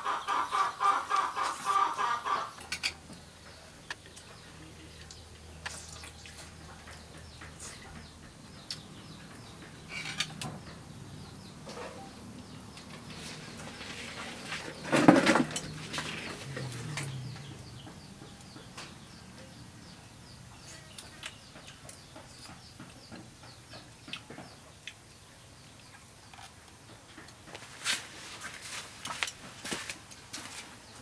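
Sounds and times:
farmyard animal calls: 0.0 - 2.8
small birds chirping: 0.0 - 31.0.

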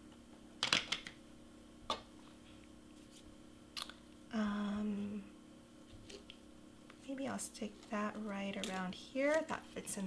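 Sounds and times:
woman humming: 4.3 - 5.4.

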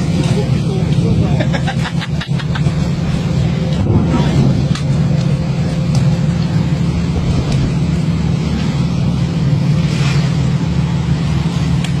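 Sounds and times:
boat engine humming: 0.0 - 12.0
rushing noise: 2.7 - 12.0.

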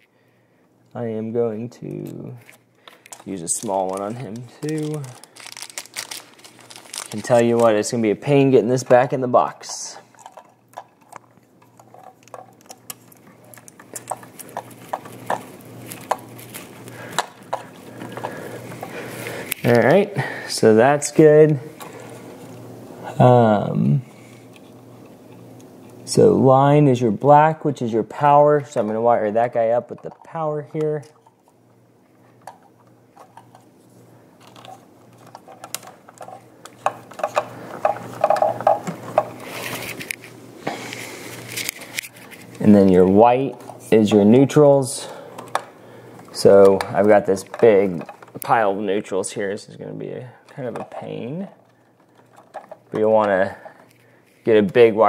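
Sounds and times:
electrical wires clicking and scraping: 0.9 - 26.4, 32.4 - 49.8, 50.4 - 55.0
hands twisting wires in plastic nut: 1.8 - 8.0, 9.7 - 20.0, 34.4 - 40.3
plastic wire nut twisting: 2.0 - 7.8.

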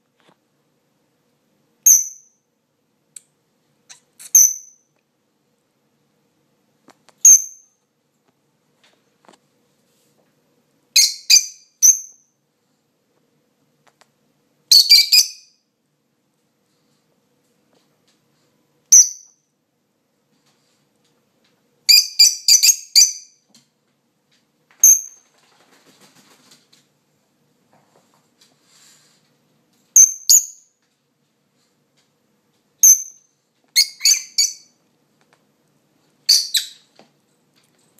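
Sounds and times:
bird chirping shrilly: 36.3 - 36.9.

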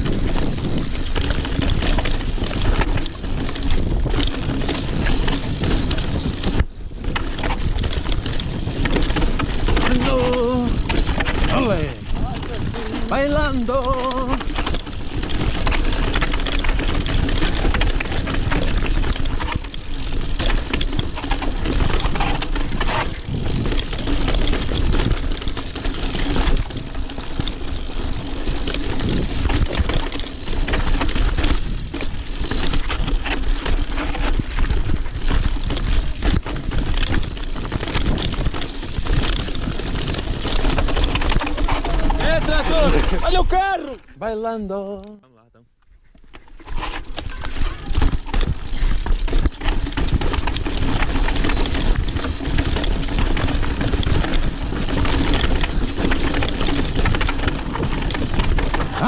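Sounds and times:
wind rumble on microphone: 0.0 - 20.3, 20.9 - 43.3
bike wheels and frame rattling: 0.0 - 44.9, 46.0 - 59.0.

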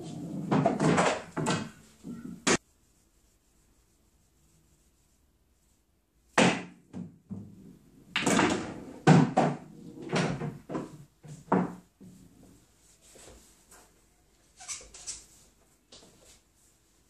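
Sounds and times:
pool balls knocking: 0.0 - 2.6, 6.4 - 12.2.

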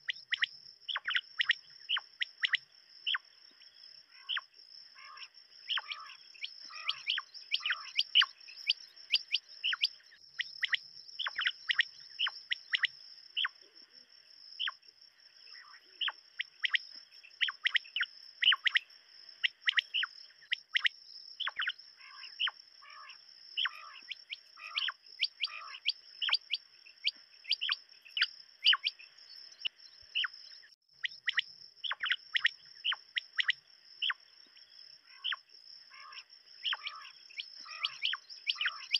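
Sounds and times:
quail calling: 5.0 - 10.0, 19.4 - 29.0, 35.1 - 38.9.

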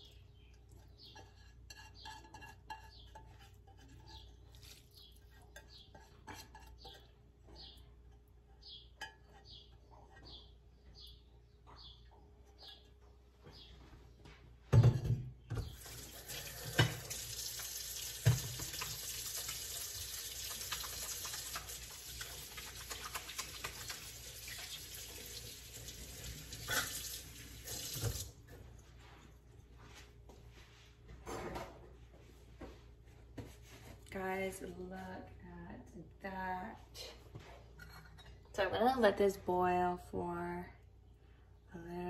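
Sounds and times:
faucet running water: 15.8 - 28.4.

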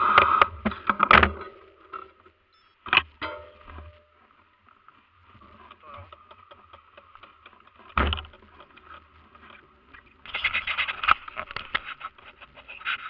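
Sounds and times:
mountain bike rattling on dirt trail: 5.4 - 13.0.

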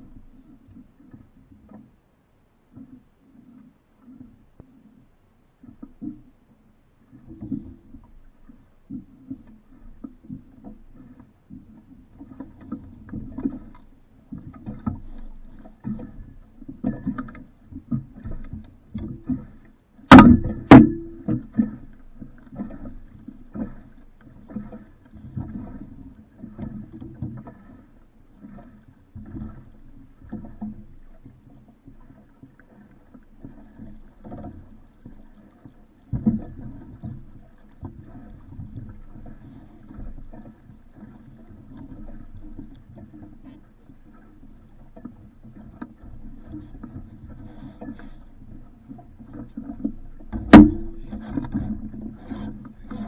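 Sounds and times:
water splashing against hull: 0.0 - 53.0
sharp loud knocks: 20.1 - 21.4, 50.4 - 51.2.

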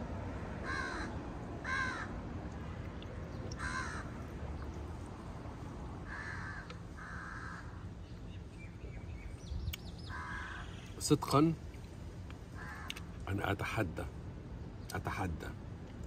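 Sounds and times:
crow cawing: 0.6 - 2.2, 3.5 - 4.2, 6.0 - 7.9, 10.0 - 11.0, 12.5 - 13.2.

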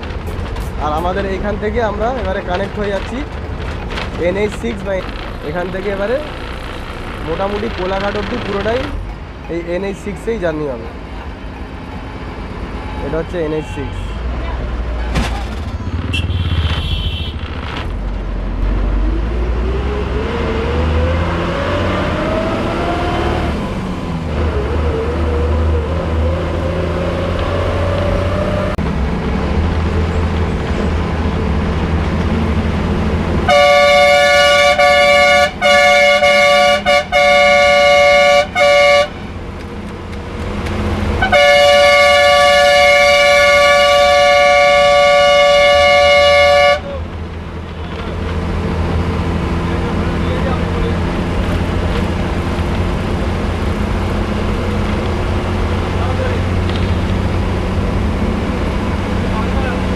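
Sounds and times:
bus engine accelerating: 0.0 - 59.9
multi-tone horn blast: 16.0 - 17.5, 33.4 - 39.3, 41.2 - 47.0.

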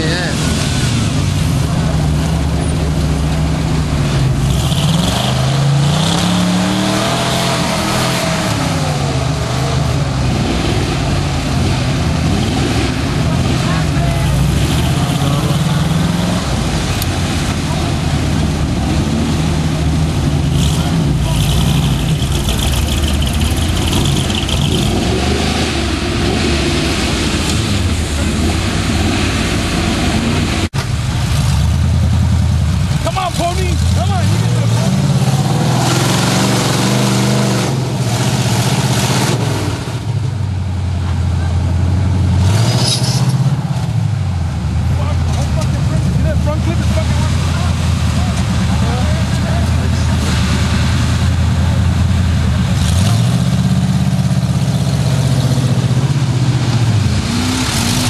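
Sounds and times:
constant rushing noise: 0.0 - 58.0
truck engine revving: 0.0 - 58.0.

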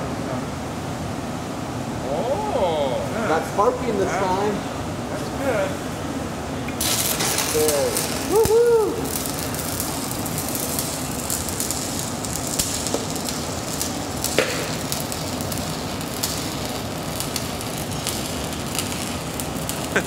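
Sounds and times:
welding arc crackling sizzle: 6.7 - 20.0.

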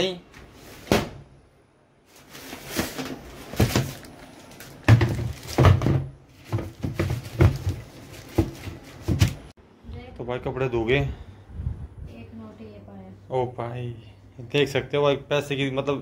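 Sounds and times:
knocks against washing machine tub: 4.9 - 7.8.

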